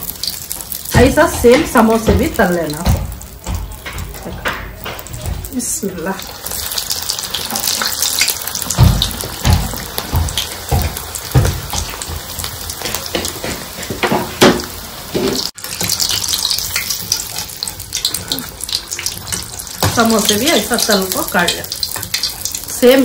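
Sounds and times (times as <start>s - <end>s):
deep-frying sizzle: 0.0s - 23.0s
dull thumps: 0.8s - 6.0s, 8.5s - 15.5s.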